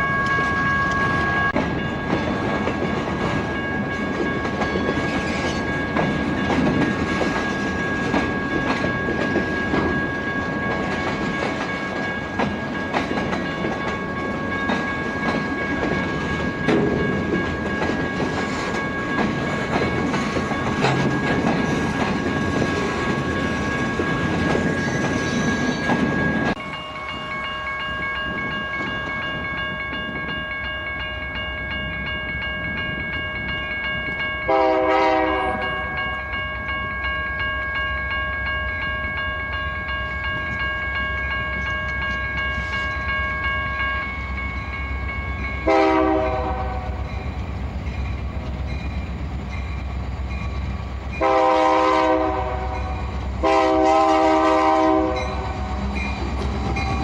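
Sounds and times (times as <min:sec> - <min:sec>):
crossing bell ringing: 0:00.0 - 0:57.0
locomotive chime horn blasts: 0:34.4 - 0:36.4, 0:45.6 - 0:47.2, 0:51.2 - 0:56.0.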